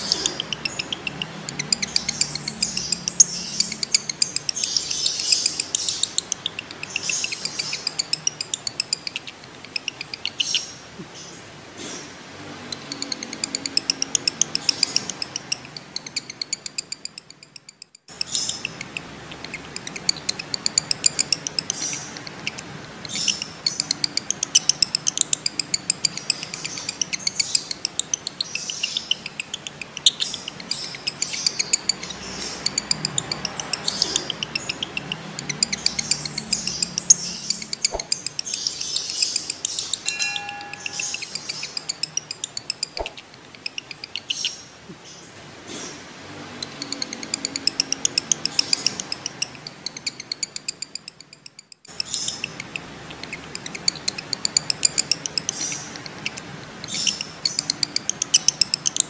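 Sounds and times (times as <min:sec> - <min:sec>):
bird chattering trill: 0:00.0 - 0:10.8, 0:12.6 - 0:44.7, 0:46.6 - 0:59.0
brief steady tone: 0:40.0 - 0:41.6.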